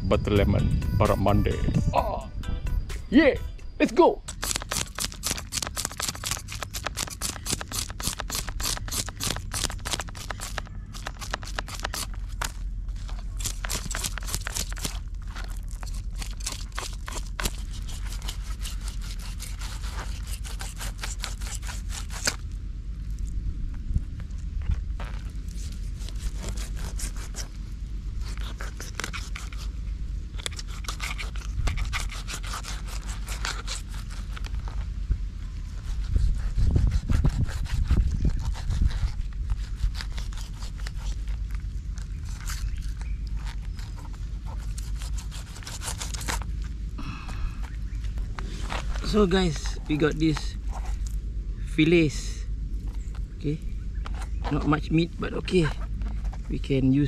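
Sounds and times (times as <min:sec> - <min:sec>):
knife scraping fish scales: 0:04.3 - 0:22.4, 0:25.0 - 0:27.6, 0:28.2 - 0:29.7, 0:30.3 - 0:34.6, 0:35.8 - 0:46.6.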